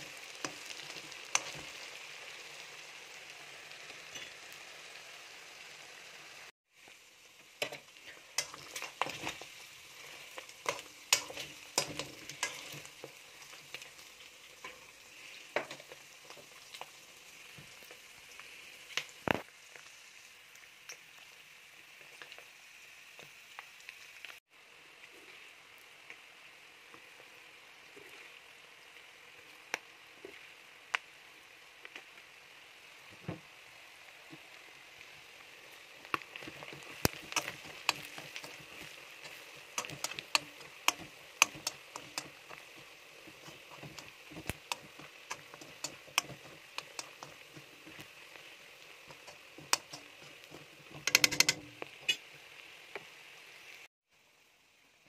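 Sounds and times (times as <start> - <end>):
meat sizzling in hot oil: 0.0 - 55.0
oil popping: 36.2 - 48.1, 49.0 - 52.3.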